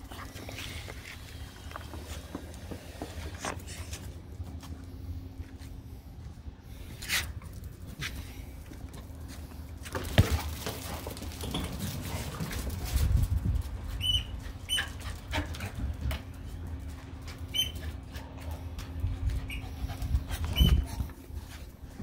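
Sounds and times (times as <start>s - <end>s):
dogs scuffling: 0.0s - 5.8s, 6.8s - 22.0s
high-pitched squeaks: 17.5s - 17.9s.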